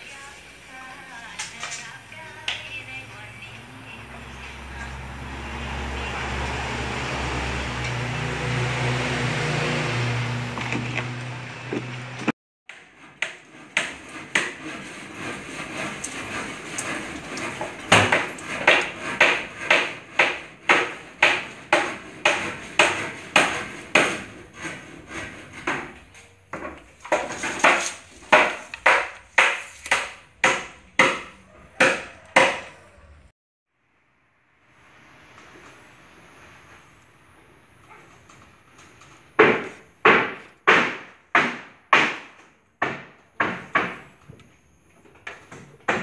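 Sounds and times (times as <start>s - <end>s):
hammer striking wood: 10.3s - 32.8s, 39.4s - 44.3s, 45.5s - 46.0s.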